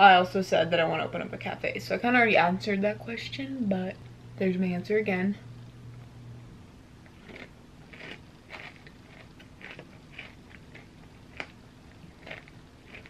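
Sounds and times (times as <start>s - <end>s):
wet chewing mouth sounds: 7.2s - 11.6s.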